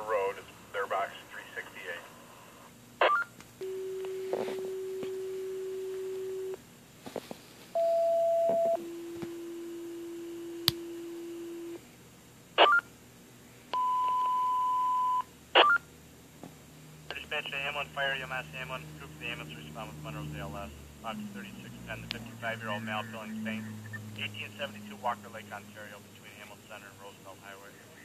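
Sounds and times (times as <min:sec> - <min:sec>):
radio chirps: 0:00.0 - 0:05.1, 0:17.1 - 0:28.0
squelch static bursts: 0:17.1 - 0:28.0
radio alert tones: 0:21.1 - 0:25.9.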